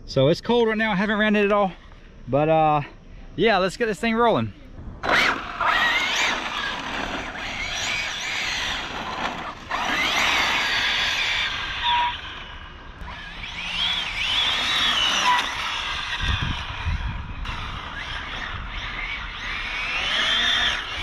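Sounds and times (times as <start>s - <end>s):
electric motor whine: 5.0s - 21.0s.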